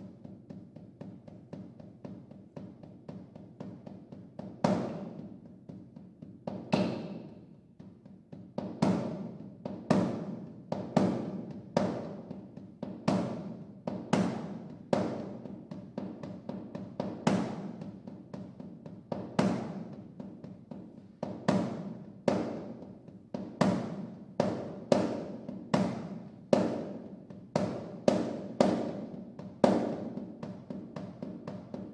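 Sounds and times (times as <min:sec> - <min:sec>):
struck drum: 0:00.0 - 0:31.9.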